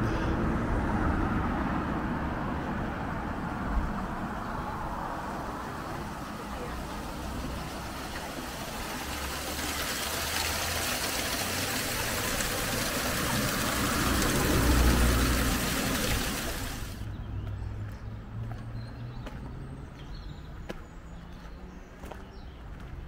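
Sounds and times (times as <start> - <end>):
water pouring and splashing: 4.9 - 17.0.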